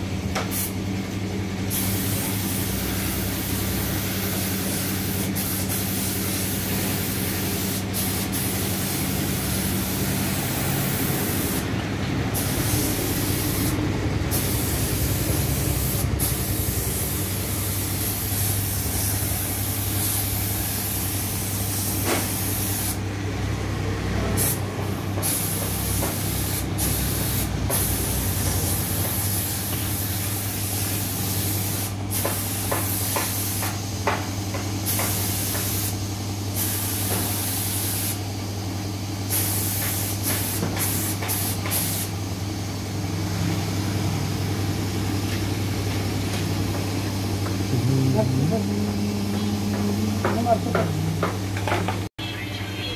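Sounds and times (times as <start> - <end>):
steady low hum: 0.0 - 25.3, 42.5 - 52.9
paint spray gun hissing: 0.4 - 0.8, 1.7 - 11.7, 12.4 - 23.0, 25.2 - 34.2, 34.8 - 38.2, 39.2 - 42.3, 45.2 - 51.7.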